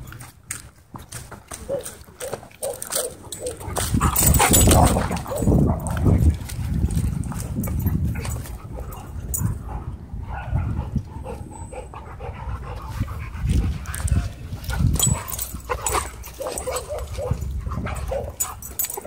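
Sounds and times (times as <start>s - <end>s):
dogs scuffling: 0.0s - 9.5s, 12.9s - 19.0s
dogs yipping and whining: 1.6s - 5.7s, 15.0s - 19.0s.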